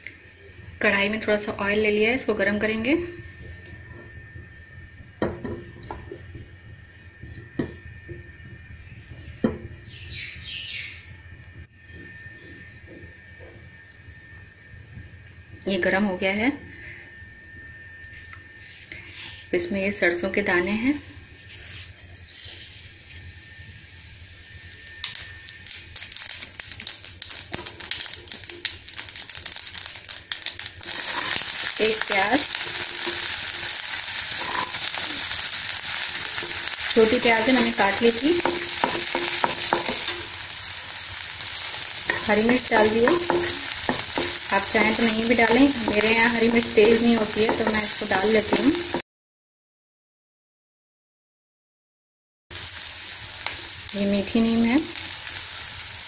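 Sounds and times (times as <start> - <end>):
low steady hum: 0.0 - 49.0
seeds sizzling and popping in oil: 23.8 - 49.0, 52.5 - 56.0.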